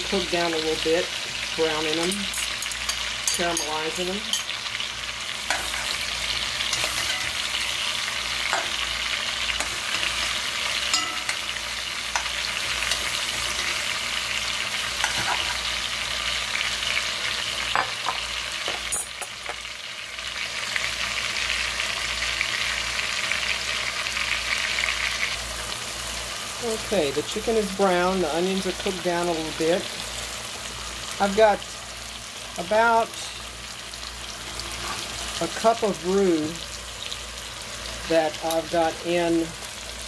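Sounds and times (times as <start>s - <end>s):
chicken and onions sizzling: 0.0s - 40.0s
utensil scraping pot: 5.4s - 14.0s.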